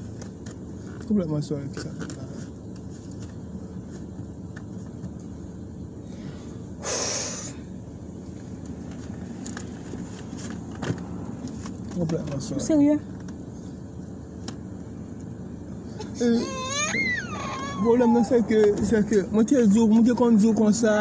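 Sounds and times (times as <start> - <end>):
car cabin hum: 0.0 - 6.8, 7.7 - 21.0
person sniffing: 6.8 - 7.6.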